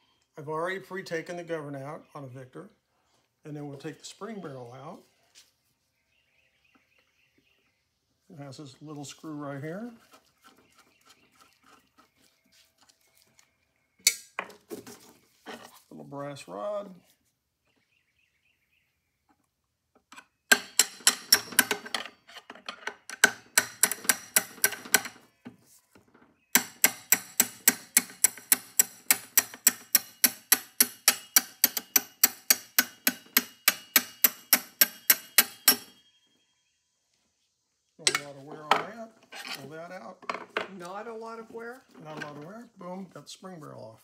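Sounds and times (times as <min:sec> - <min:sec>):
hammer tapping metal rod: 0:26.6 - 0:35.9.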